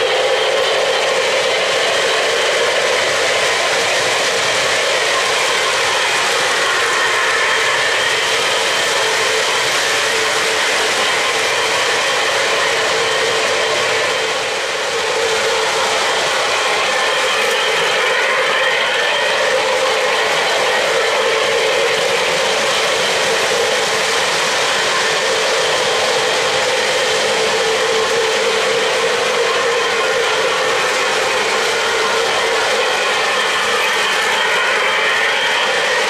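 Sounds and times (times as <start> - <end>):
model train motors whirring: 0.0 - 36.0.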